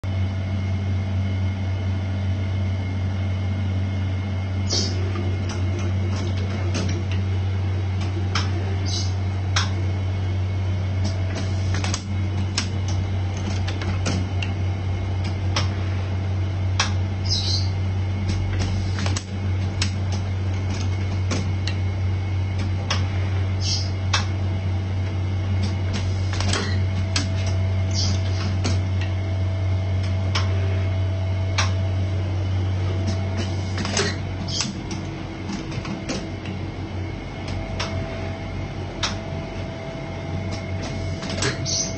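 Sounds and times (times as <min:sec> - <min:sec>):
machine humming: 0:00.0 - 0:41.9
machine clicks: 0:18.2 - 0:21.8.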